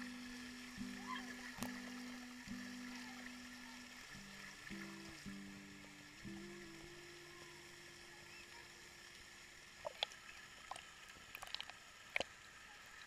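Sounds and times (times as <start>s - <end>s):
pool water lapping: 0.0s - 13.0s
small sharp splashes: 9.8s - 12.4s.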